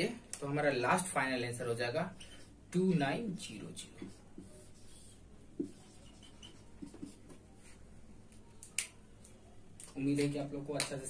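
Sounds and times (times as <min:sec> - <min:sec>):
marker writing on whiteboard: 0:01.9 - 0:09.3.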